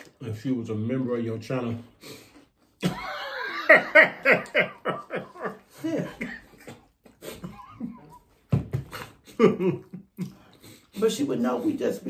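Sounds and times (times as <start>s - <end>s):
person laughing hard: 2.8s - 8.2s, 8.9s - 10.0s.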